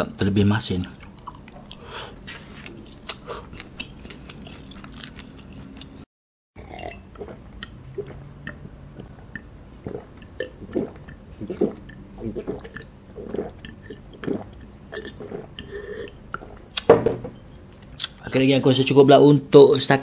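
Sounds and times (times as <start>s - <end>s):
chewing noodles: 1.0s - 6.0s
wet mouth clicks: 3.0s - 5.1s
swallowing: 6.6s - 16.8s.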